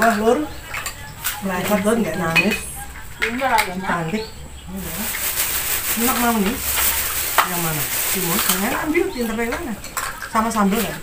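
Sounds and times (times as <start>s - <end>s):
voices talking: 0.0s - 11.0s
plastic bag crinkling: 4.7s - 11.0s.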